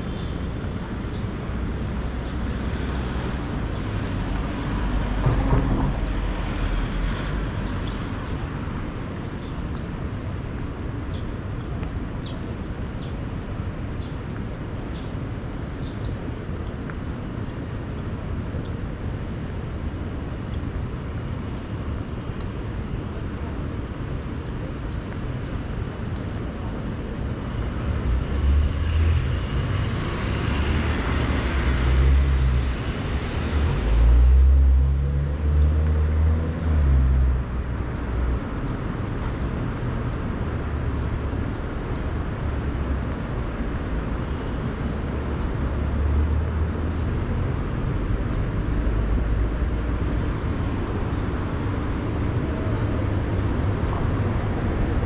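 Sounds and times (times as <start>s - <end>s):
low rumble of city traffic: 0.0s - 55.0s
car passing by: 27.7s - 37.6s.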